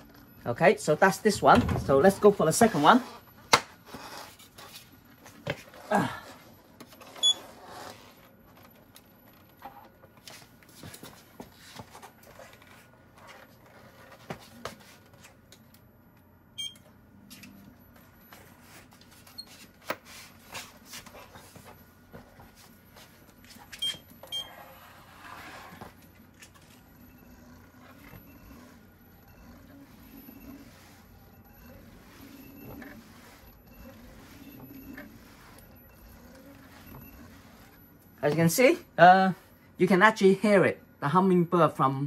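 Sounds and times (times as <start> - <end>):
short electronic beeps: 7.2 - 7.4, 16.6 - 16.8.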